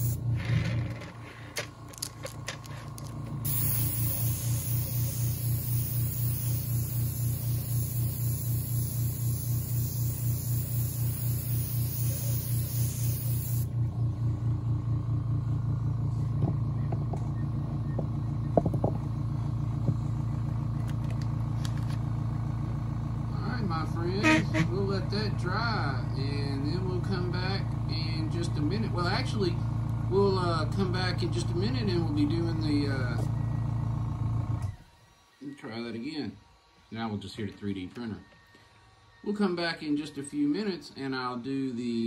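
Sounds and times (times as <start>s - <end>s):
airbrush hissing: 0.0s - 0.2s, 3.4s - 13.7s
compressor pulsing hum: 0.0s - 35.3s.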